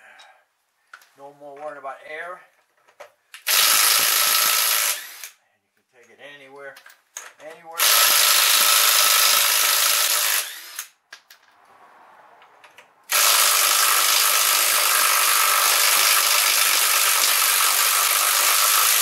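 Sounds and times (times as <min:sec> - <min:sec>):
impact wrench hammering: 0:03.4 - 0:05.2, 0:13.1 - 0:19.0.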